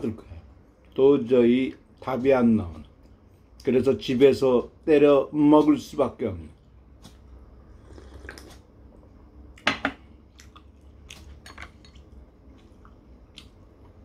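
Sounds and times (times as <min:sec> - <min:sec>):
chewing: 0:10.3 - 0:14.0.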